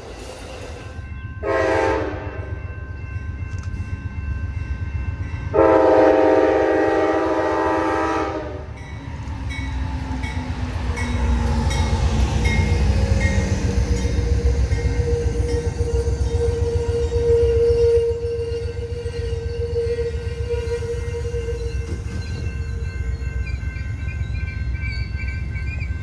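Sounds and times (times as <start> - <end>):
locomotive air horn blasts: 1.4 - 2.5, 5.5 - 8.8, 15.9 - 21.8.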